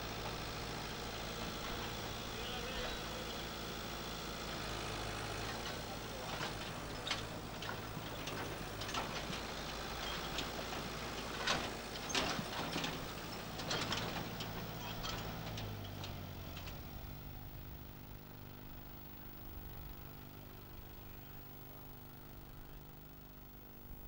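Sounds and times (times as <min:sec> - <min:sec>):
trailer knocks and rattles: 0:00.0 - 0:17.6
tractor diesel engine running: 0:00.0 - 0:24.0.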